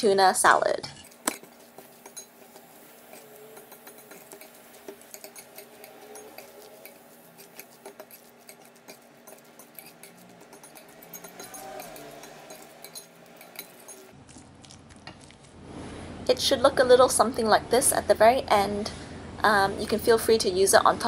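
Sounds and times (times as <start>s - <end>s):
utensils clinking and scraping bowl: 0.4s - 14.2s.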